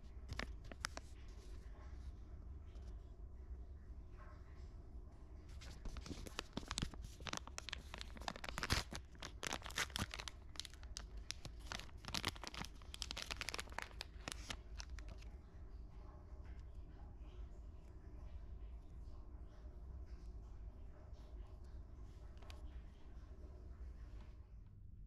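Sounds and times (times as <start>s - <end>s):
paper crackling and rustling: 0.1s - 1.7s, 5.5s - 15.3s.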